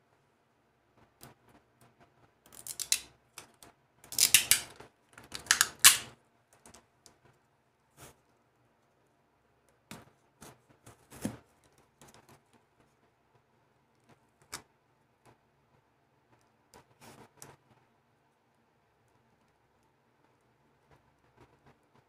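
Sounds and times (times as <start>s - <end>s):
tape pulled off a roll: 4.1s - 6.1s.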